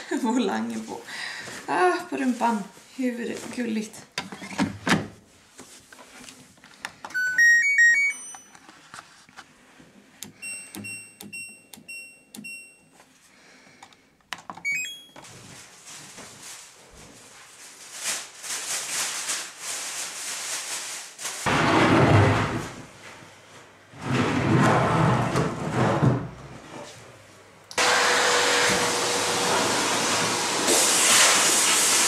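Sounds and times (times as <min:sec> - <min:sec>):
washing machine beeps: 0:07.1 - 0:08.5, 0:10.3 - 0:13.0, 0:14.6 - 0:15.2
washing machine rushing hiss: 0:27.8 - 0:32.0.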